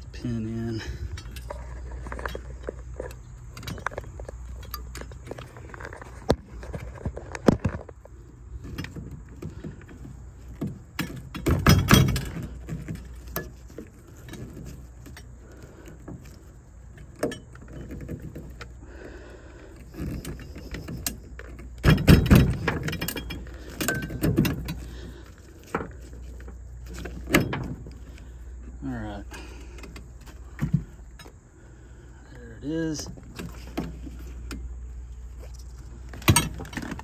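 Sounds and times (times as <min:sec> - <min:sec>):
metal tubes clinking and scraping: 0:00.2 - 0:18.7, 0:19.5 - 0:32.0
metal clattering: 0:08.6 - 0:15.3, 0:20.0 - 0:28.2.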